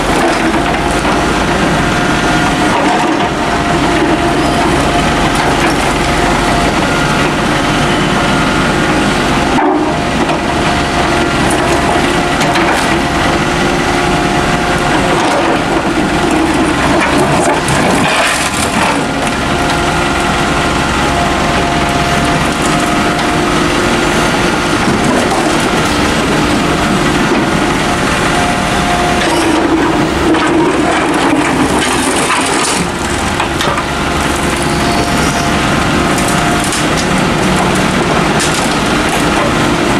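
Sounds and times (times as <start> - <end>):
excavator engine and hydraulic whine: 0.0 - 39.9
bucket crunching through rubble: 14.8 - 20.2, 29.1 - 35.6.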